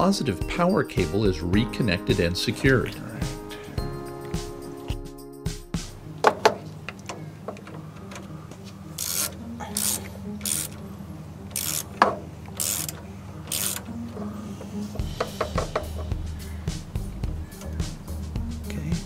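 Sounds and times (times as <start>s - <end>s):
ratchet clicking: 9.0s - 10.8s, 11.5s - 13.9s.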